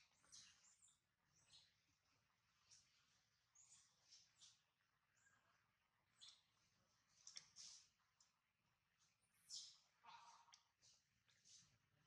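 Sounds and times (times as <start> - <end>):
small clicks: 7.1 - 8.4.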